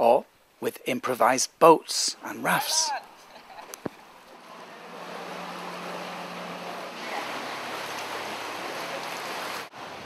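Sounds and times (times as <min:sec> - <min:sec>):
floodwater splashing: 0:02.4 - 0:10.0
low engine hum: 0:03.5 - 0:10.0.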